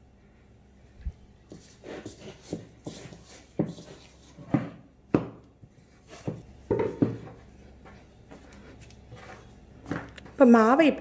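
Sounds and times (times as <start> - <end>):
dough thudding on a board: 2.5 - 5.5, 6.2 - 7.4.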